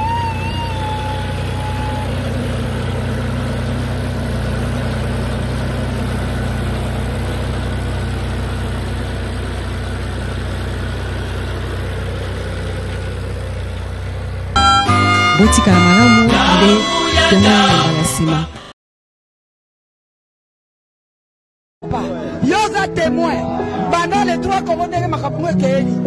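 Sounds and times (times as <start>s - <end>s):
high warbling tone: 0.0s - 3.2s, 14.6s - 18.3s
tractor diesel engine running: 0.0s - 18.1s.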